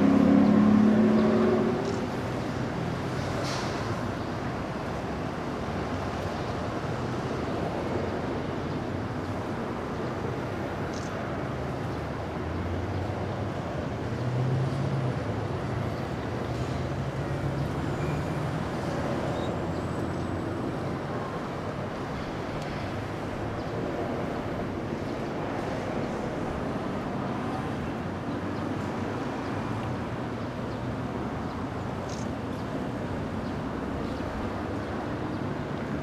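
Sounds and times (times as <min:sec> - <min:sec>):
low engine note: 0:00.0 - 0:02.5
vehicles driving past: 0:00.0 - 0:36.0.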